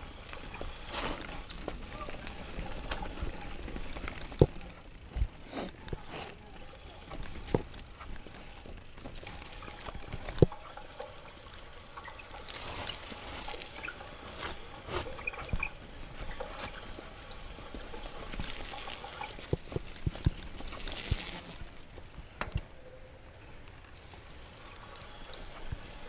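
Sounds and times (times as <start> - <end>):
bike tyres through mud: 0.0 - 22.4
bike knocking on bumps: 0.4 - 11.3, 14.4 - 22.7.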